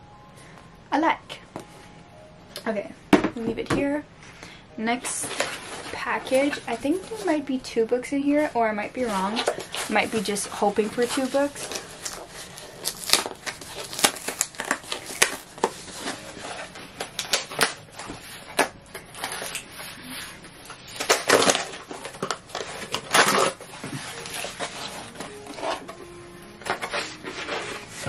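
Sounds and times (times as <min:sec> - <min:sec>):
cardboard mailer tearing: 0:11.0 - 0:26.0.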